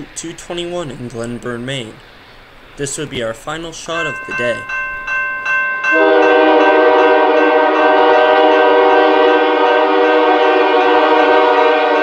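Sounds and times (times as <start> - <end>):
locomotive air horn blast: 5.9 - 12.0.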